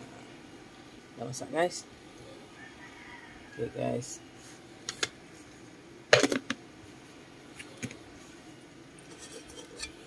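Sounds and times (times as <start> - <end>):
cookware clattering on a stove: 9.1 - 10.0.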